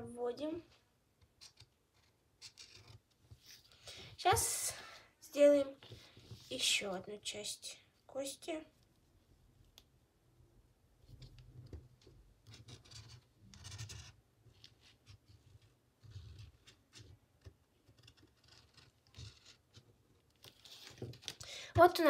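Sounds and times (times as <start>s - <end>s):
marker scratching on fabric: 12.4s - 17.2s, 17.8s - 19.9s.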